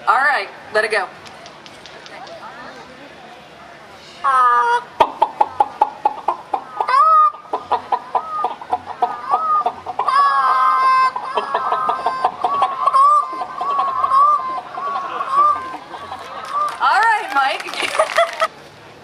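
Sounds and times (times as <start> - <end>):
man imitating chicken clucks: 4.5 - 16.7.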